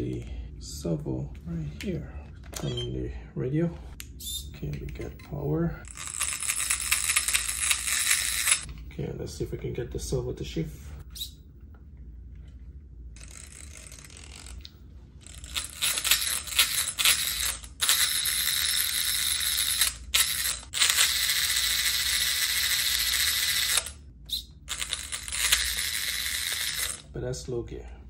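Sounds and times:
gears whirring with light rattle: 0:04.9 - 0:08.7, 0:13.2 - 0:27.1.

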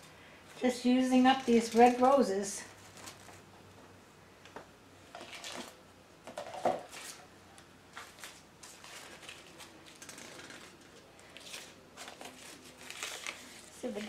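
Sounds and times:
artificial flower stems rustling: 0:00.0 - 0:03.5, 0:07.9 - 0:14.0.

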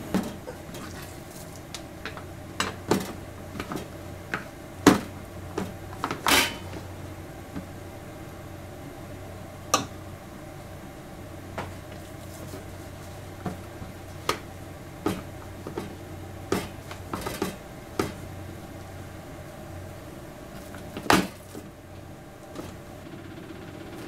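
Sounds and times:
low steady hum: 0:00.0 - 0:24.0
utensils clattering: 0:06.1 - 0:06.8.

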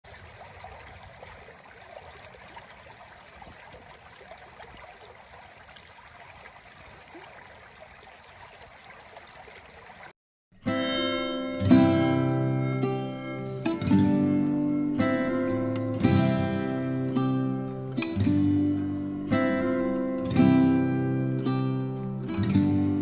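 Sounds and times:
plucked-string music: 0:10.6 - 0:23.0.

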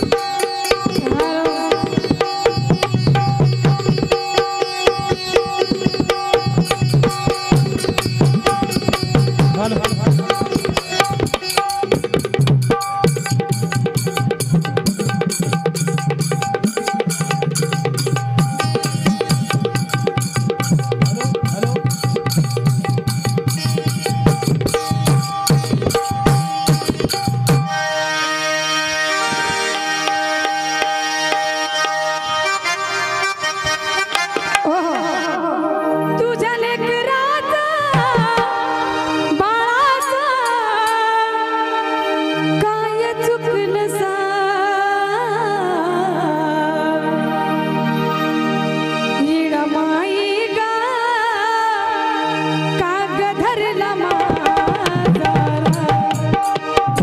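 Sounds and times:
reed keyboard melody: 0:00.0 - 0:57.0
fast hand-drum strokes: 0:00.1 - 0:27.7.

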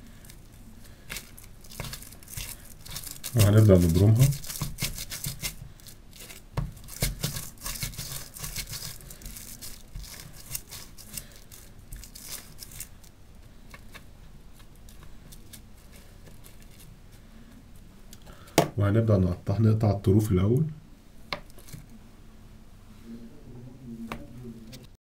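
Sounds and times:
cling film crinkling: 0:00.2 - 0:13.2.

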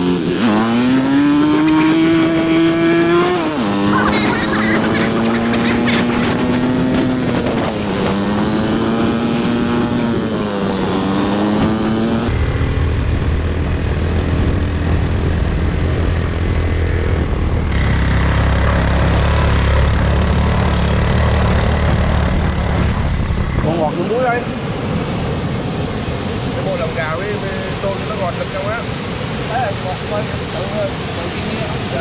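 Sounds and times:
engine running: 0:00.0 - 0:32.0
steady low rumble: 0:12.3 - 0:28.5.

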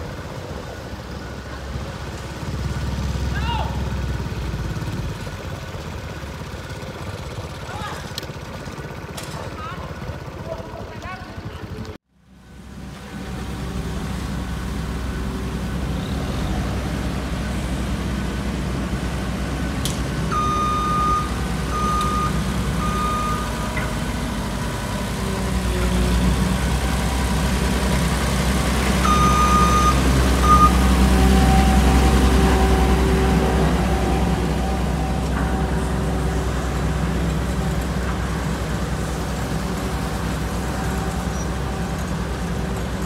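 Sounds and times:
road roller engines rumbling: 0:00.0 - 0:43.0
reversing alarm beeps: 0:20.3 - 0:23.9, 0:29.0 - 0:35.8.

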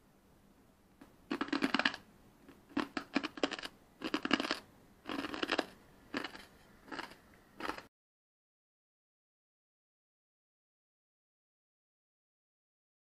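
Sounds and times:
crunching of crispy rice chewed: 0:01.3 - 0:02.0, 0:02.6 - 0:07.9.

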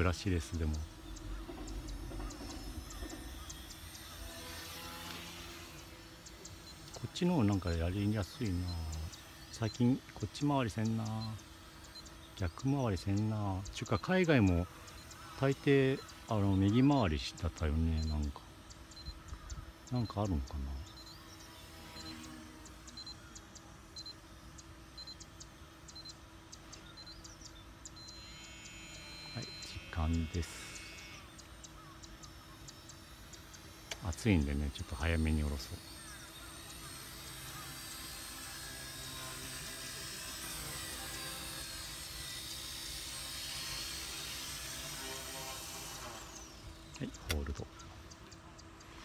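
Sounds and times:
faint steady hum: 0:00.0 - 0:49.0
toy helicopter motor whine: 0:00.0 - 0:49.0
short high electronic beeps: 0:28.0 - 0:32.9
light click: 0:47.2 - 0:47.6.

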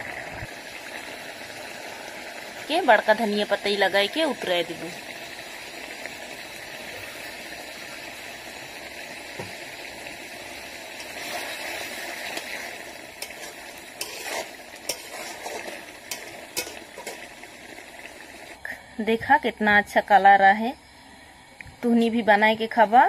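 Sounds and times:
curry bubbling: 0:00.0 - 0:18.6
ladle scraping a pan: 0:11.0 - 0:17.4.

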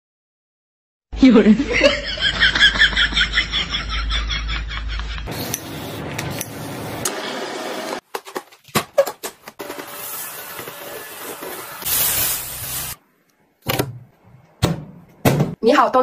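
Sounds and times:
person laughing: 0:01.6 - 0:05.3
spray bottle misting: 0:11.4 - 0:13.0.

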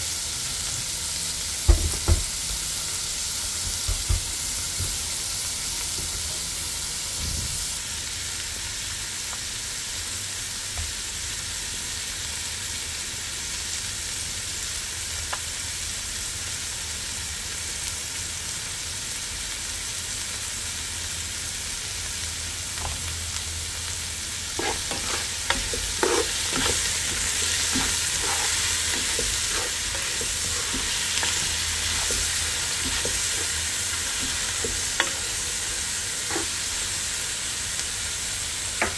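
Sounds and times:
food sizzling in a pan: 0:00.0 - 0:38.9
spatula scraping a pan: 0:24.5 - 0:36.8.

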